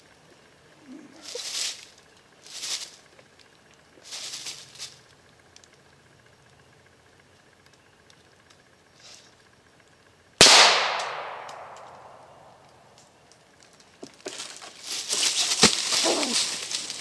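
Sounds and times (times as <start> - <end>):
loud scuffling noise: 4.0 - 5.0, 14.2 - 17.0
gunshot: 10.4 - 11.9.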